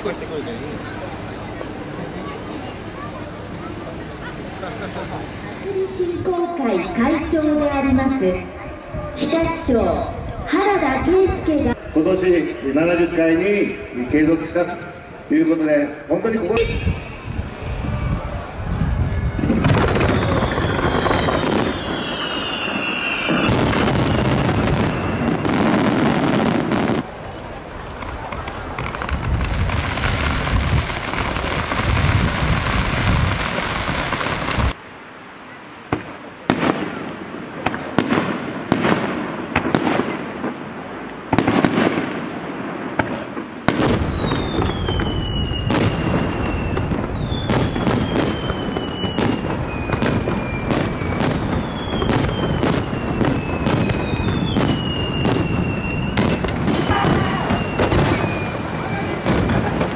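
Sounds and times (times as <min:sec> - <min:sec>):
fireworks hissing rush: 0:00.0 - 0:59.9
falling firework whistles: 0:16.7 - 0:27.1, 0:35.4 - 0:59.9
firework shells bursting: 0:35.9 - 0:59.9.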